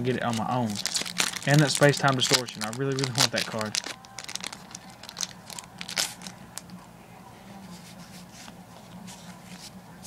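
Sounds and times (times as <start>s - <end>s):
foil wrapper crackling: 0.0s - 6.4s
cards rustling and clicking: 0.0s - 6.8s.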